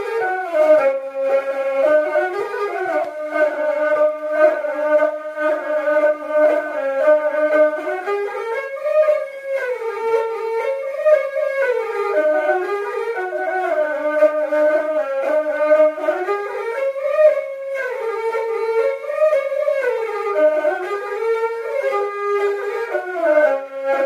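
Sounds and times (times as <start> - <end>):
instrumental melody: 0.0 - 24.0.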